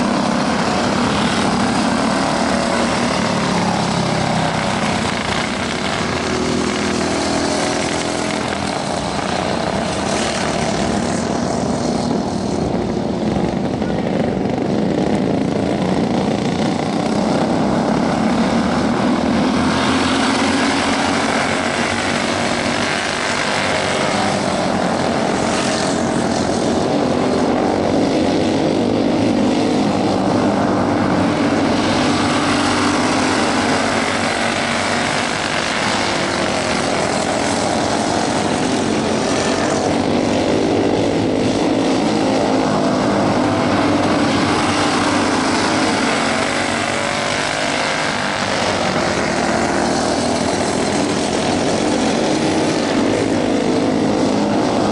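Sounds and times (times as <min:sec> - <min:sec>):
racing kart engines: 0:00.0 - 0:54.9.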